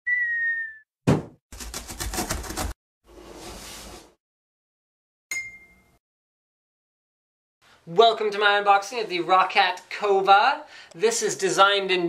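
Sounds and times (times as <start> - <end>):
whistle-like tone dipping: 0.0 - 0.9
bell-like ding: 5.3 - 6.0.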